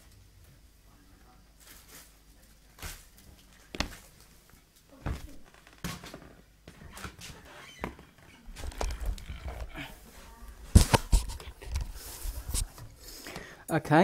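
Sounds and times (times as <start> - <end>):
knocks and clunks of objects moved: 5.1 - 9.9.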